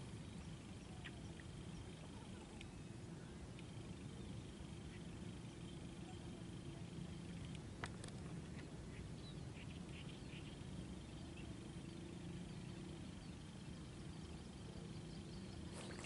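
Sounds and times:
small birds chirping: 0.0 - 16.0
steady low hum: 0.0 - 16.0.

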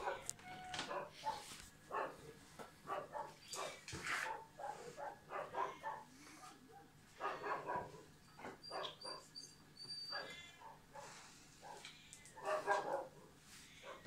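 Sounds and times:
dog whining: 7.2 - 10.8.

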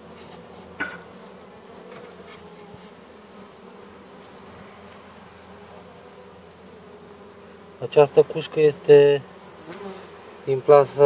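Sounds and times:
honeybees humming: 0.0 - 11.0.

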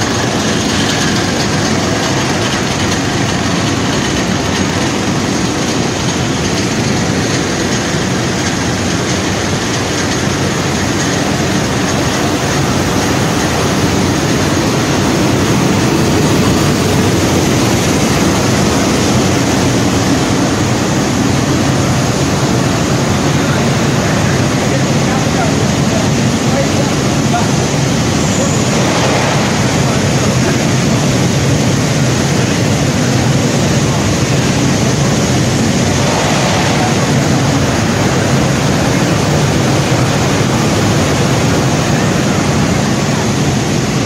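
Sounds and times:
factory machinery din: 0.0 - 44.0.

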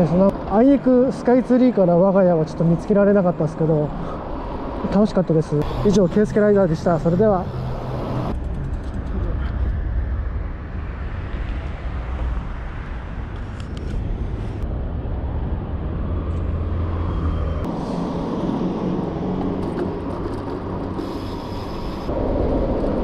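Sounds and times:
road traffic noise: 0.0 - 23.0
wind rumbling on microphone: 5.6 - 23.0.

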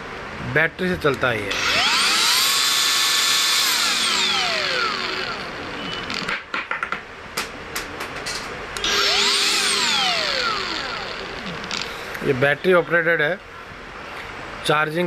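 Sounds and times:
angle grinder motor whine: 1.5 - 6.3, 8.8 - 12.0.

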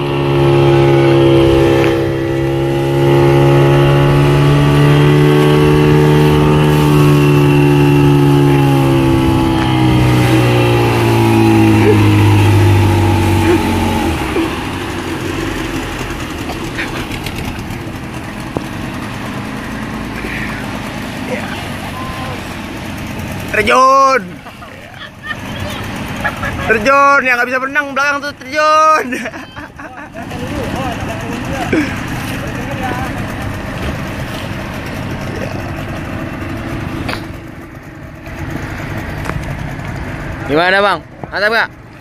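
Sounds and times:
rush of wind and water: 0.0 - 24.4
speedboat engine running hard: 0.0 - 42.0.

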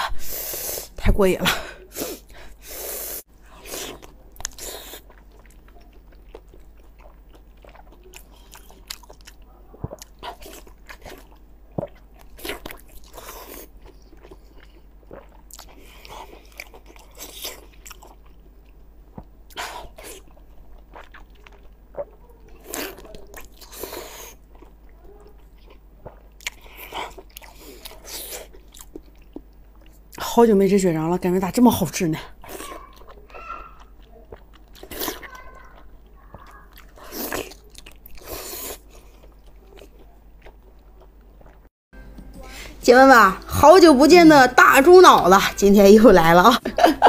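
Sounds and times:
biting and chewing: 3.5 - 30.1, 32.4 - 41.7.

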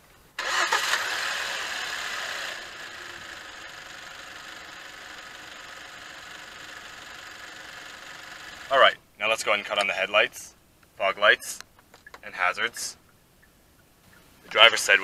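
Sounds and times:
car engine idling: 0.4 - 8.7.

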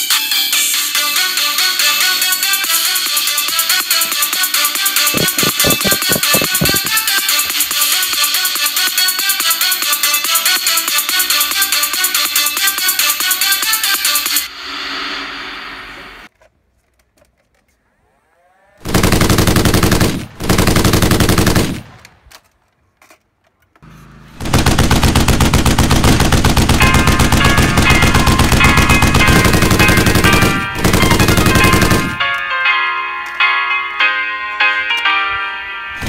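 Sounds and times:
toy blaster firing darts: 4.7 - 7.6, 26.8 - 32.2.

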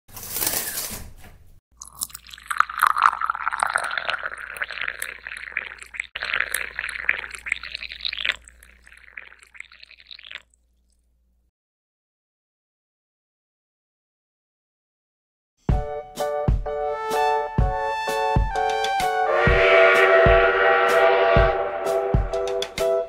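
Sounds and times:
coffee pouring into a mug: 1.8 - 10.5.

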